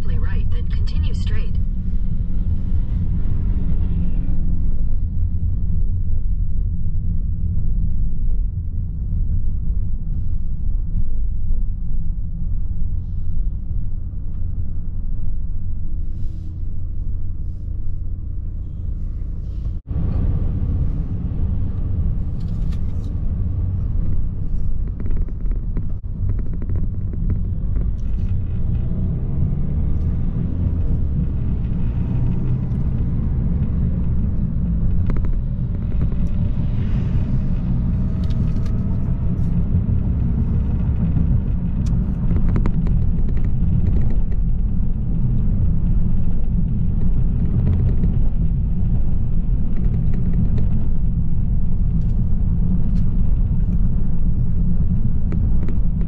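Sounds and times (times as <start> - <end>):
car interior engine and road rumble: 0.0 - 56.0.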